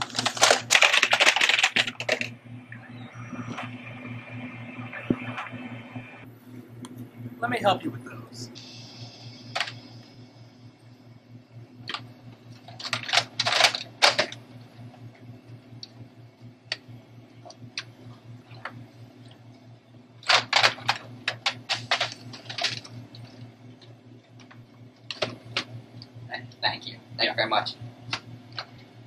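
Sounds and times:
clicks and rustles of handled objects: 0.0s - 2.3s
low electrical hum: 0.0s - 29.0s.

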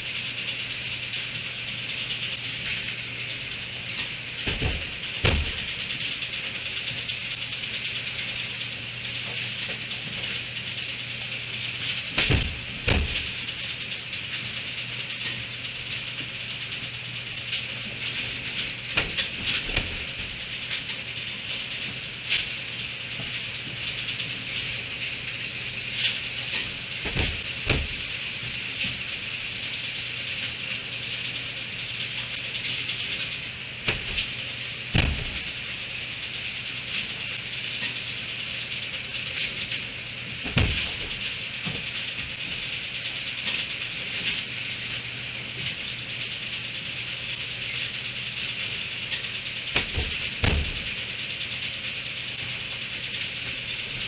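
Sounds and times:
steady outdoor hiss: 0.0s - 54.0s
sharp knocks: 4.5s - 5.7s, 27.0s - 28.1s, 35.0s - 35.6s
short knocks: 35.0s - 35.6s.

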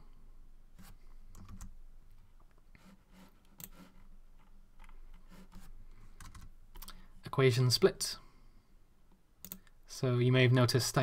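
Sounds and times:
computer keyboard clicks: 6.2s - 7.0s, 9.4s - 9.7s.

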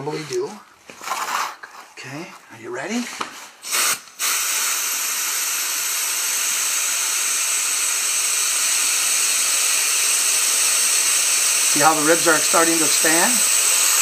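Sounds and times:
air hissing: 3.6s - 14.0s.

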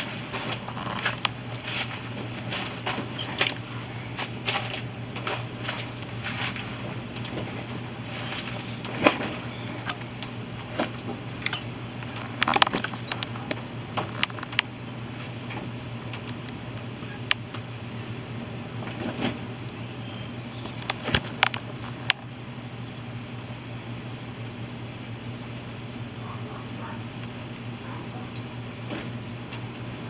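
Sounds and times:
steady low hum: 0.0s - 30.0s
small clicks and taps: 9.7s - 14.7s, 20.6s - 22.3s.

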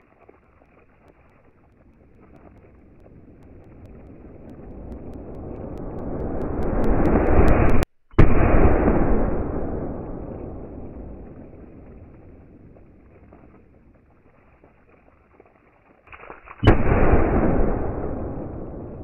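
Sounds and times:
slowed gunshot low rumble: 2.4s - 12.3s, 16.6s - 19.0s.

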